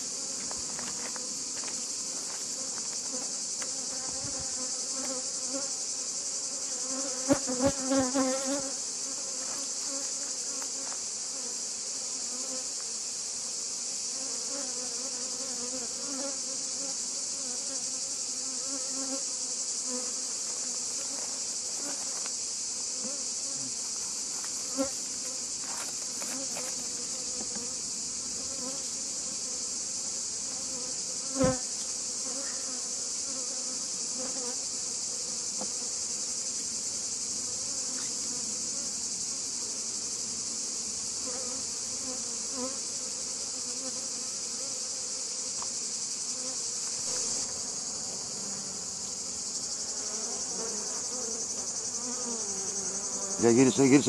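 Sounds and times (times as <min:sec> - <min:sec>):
bees buzzing: 0:00.0 - 0:54.0.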